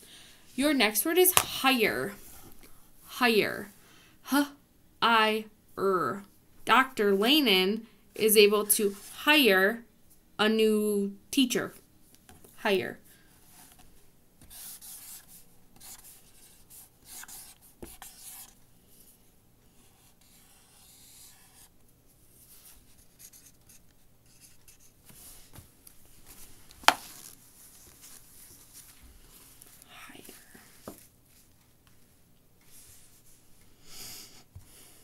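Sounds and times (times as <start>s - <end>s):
pen scratching on paper: 14.5s - 18.6s, 19.7s - 21.7s, 23.0s - 24.9s.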